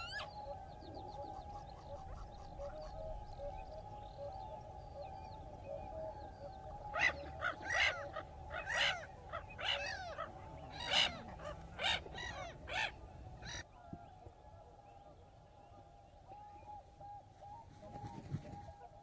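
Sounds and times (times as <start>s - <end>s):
gulls harsh rasping calls: 6.8s - 13.6s.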